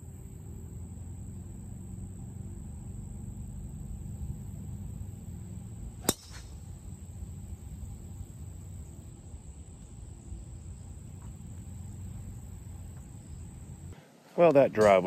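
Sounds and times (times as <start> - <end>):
faint high whine: 0.0 - 15.0
outdoor background noise: 0.0 - 15.0
golf club striking ball: 6.0 - 7.0.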